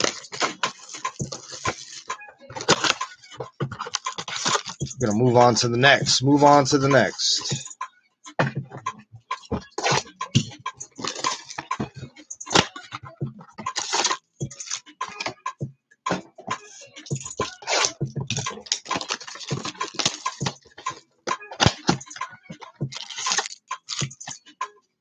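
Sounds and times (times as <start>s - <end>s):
packaging crinkling and tearing: 0.0s - 3.0s, 3.8s - 4.9s, 11.0s - 11.7s, 13.7s - 14.8s, 17.4s - 20.9s, 23.0s - 24.4s.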